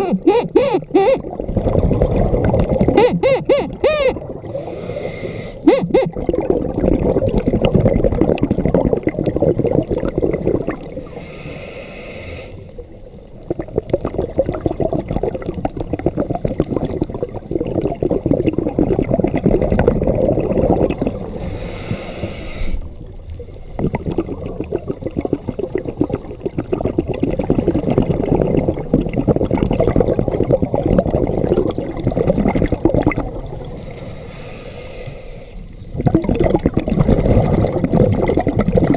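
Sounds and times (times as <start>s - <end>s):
bubbling regulator exhalations: 0.0s - 11.4s, 13.4s - 34.0s, 35.8s - 38.9s
hissing regulator inhalation: 3.1s - 6.0s, 11.0s - 12.7s, 21.4s - 22.9s, 33.7s - 35.7s.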